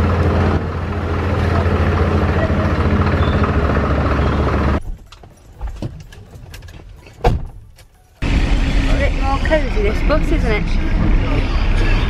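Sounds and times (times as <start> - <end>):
engine idling hum: 0.0 - 4.9, 8.2 - 12.0.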